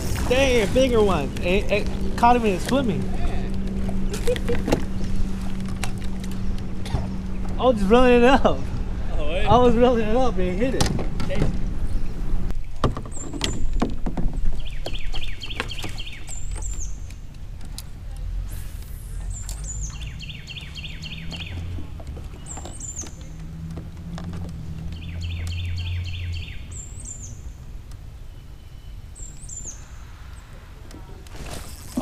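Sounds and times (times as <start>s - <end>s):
low rumble: 0.0s - 12.6s
songbird calling: 14.4s - 17.3s, 19.2s - 23.8s, 24.5s - 31.2s.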